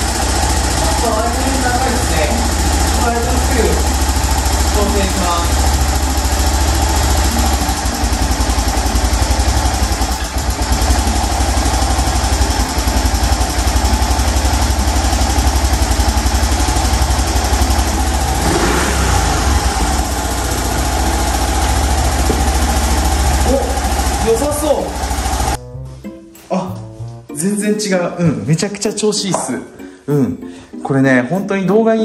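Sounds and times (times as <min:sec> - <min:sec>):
motorcycle engine idling: 0:00.0 - 0:25.6.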